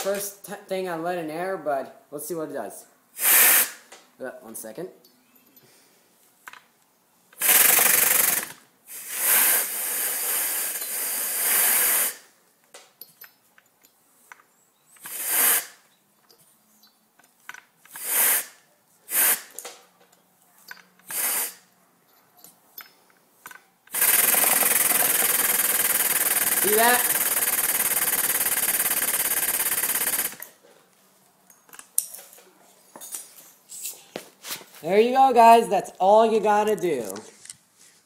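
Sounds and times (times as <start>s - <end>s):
hissing air: 3.2s - 3.9s, 7.4s - 12.3s, 15.0s - 15.8s, 17.9s - 19.6s, 21.0s - 21.7s, 23.9s - 30.4s
chainsaw engine running on air: 23.9s - 30.4s.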